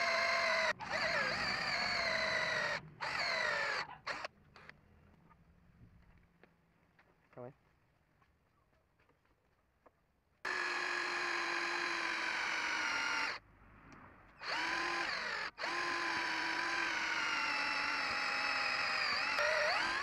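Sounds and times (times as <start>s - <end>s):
electric drill whining: 0.0s - 4.7s, 10.5s - 13.4s, 14.4s - 20.0s.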